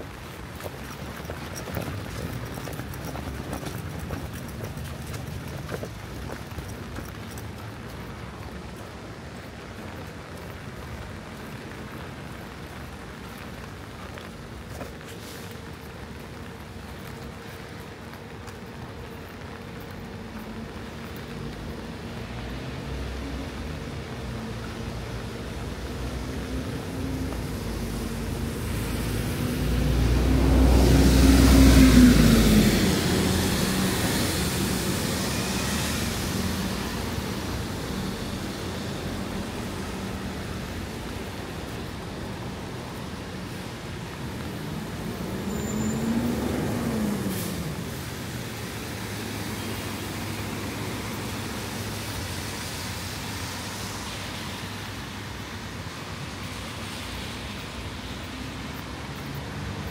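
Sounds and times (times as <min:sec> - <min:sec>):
tyres hissing on wet pavement: 0:00.0 - 0:59.9
car engine passing by: 0:22.2 - 0:42.8, 0:43.5 - 0:54.7.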